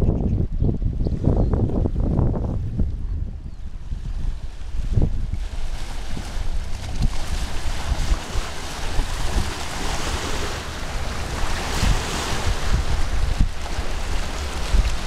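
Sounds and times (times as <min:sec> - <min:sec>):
wind buffeting microphone: 0:00.0 - 0:15.0
small waves washing on beach: 0:04.1 - 0:15.0.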